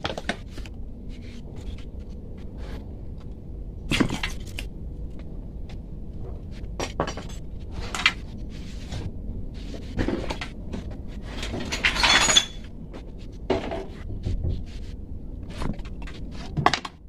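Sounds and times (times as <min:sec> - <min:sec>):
low rumble: 0:00.0 - 0:16.6
metal part clinking in basin: 0:11.7 - 0:12.6.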